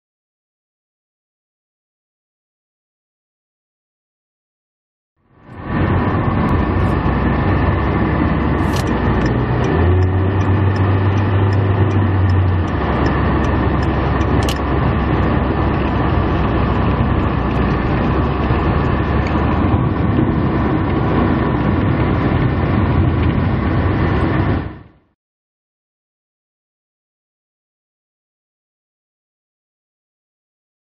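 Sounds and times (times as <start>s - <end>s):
tyres and engines rumbling: 5.2s - 25.1s
deeper hum: 5.3s - 25.1s.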